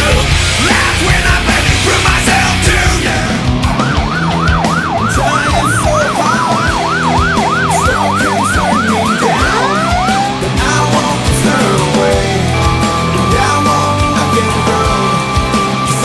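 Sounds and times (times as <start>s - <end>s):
rock music: 0.0s - 16.0s
emergency siren: 3.3s - 10.7s, 11.7s - 16.0s.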